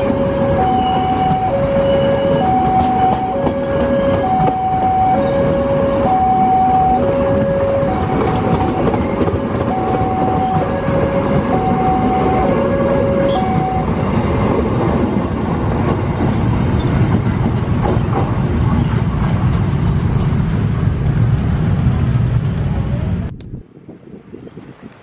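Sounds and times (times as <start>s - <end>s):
two-tone level crossing alarm: 0.0s - 14.2s
train coaches rumbling past: 0.0s - 25.0s
wheels clacking over rail joints: 0.8s - 12.4s, 13.2s - 22.8s.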